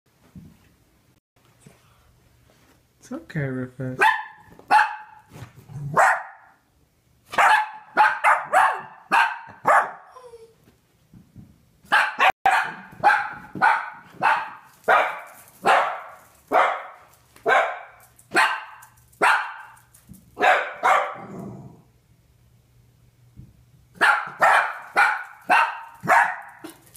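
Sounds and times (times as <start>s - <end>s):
dogs barking: 4.0s - 5.3s, 5.9s - 6.6s, 7.3s - 10.1s, 11.9s - 21.3s, 24.0s - 26.9s.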